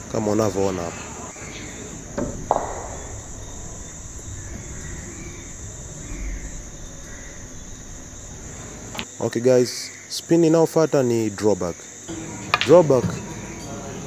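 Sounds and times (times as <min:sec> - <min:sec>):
insects chirring: 0:00.1 - 0:09.1
billiard balls knocking: 0:01.4 - 0:09.0
cue tip striking ball: 0:01.4 - 0:09.0.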